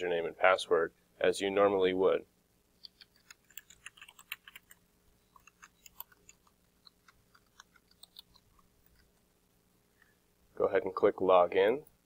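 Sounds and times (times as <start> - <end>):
faint keyboard typing: 2.8 - 9.3.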